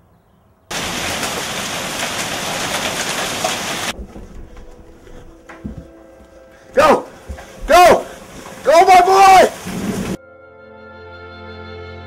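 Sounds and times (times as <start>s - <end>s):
hail and rain pelting: 0.7s - 10.2s.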